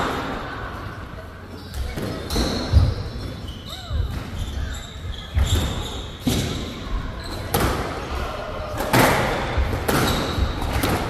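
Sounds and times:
squash ball hitting rackets and walls: 5.4 - 8.2, 8.8 - 11.0.

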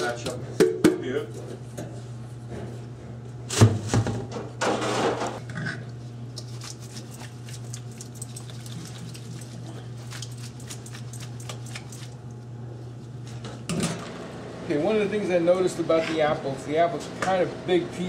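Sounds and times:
steady low hum: 0.0 - 18.0
fruit shaken in metal colander: 6.4 - 12.2.

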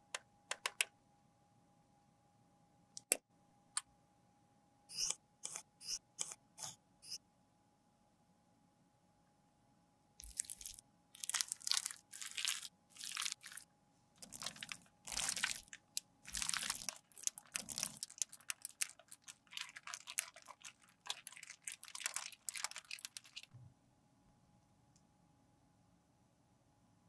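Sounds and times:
plastic film crinkling: 10.2 - 13.6, 14.2 - 23.5
dense plastic crackling: 14.2 - 23.5.

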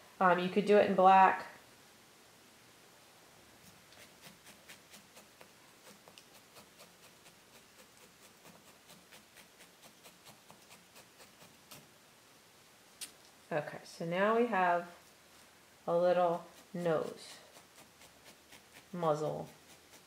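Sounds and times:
felting needle ticking into wool: 4.0 - 11.9, 16.3 - 20.0.

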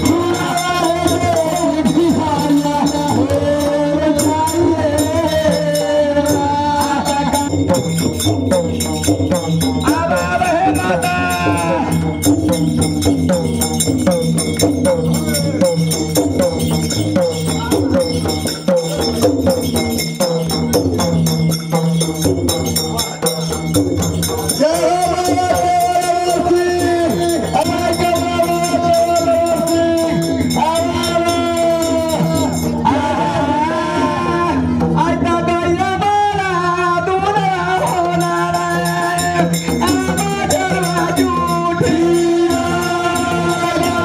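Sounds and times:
person singing: 0.0 - 7.8, 24.6 - 44.0
hand drums: 0.0 - 44.0
jingling percussion: 0.0 - 44.0.

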